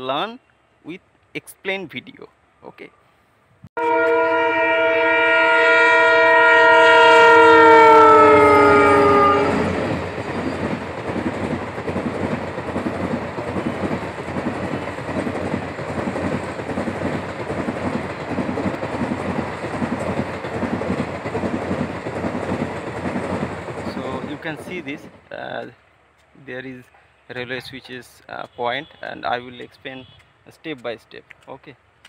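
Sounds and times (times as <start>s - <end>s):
locomotive horn blaring: 3.8s - 9.8s
train wheels clickety-clack: 9.7s - 25.7s.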